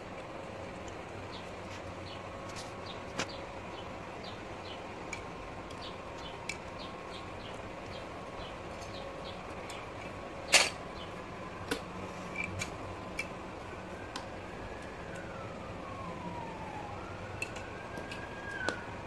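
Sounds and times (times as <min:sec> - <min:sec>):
steady hum: 0:00.0 - 0:19.0
plastic toys clicking and tapping: 0:17.4 - 0:18.8.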